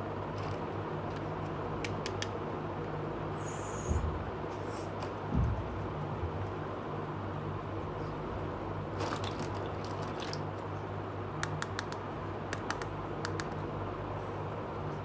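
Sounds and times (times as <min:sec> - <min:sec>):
steady low hum: 0:00.0 - 0:15.0
plastic toys rustling: 0:08.9 - 0:10.5.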